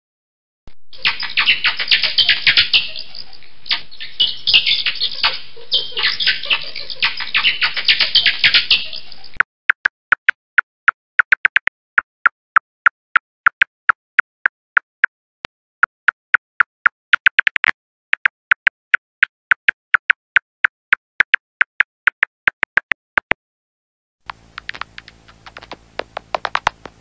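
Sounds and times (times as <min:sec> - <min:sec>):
bat echolocation clicks: 0:24.3 - 0:26.8.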